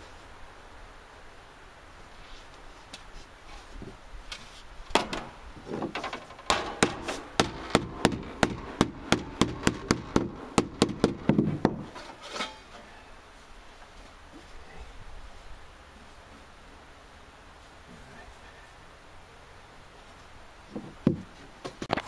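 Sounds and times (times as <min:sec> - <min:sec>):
hammer striking sheet metal: 0:06.5 - 0:11.4.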